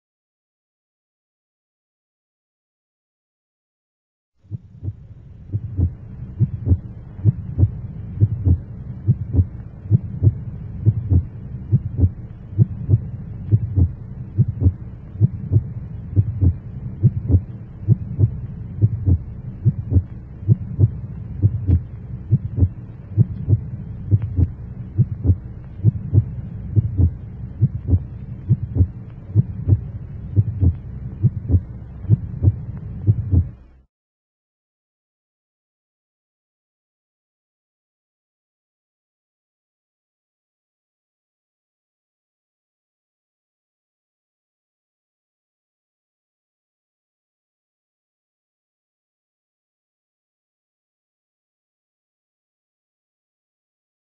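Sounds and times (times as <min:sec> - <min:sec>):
steady low hum: 0:04.4 - 0:33.9
heartbeat thumps: 0:04.5 - 0:33.6.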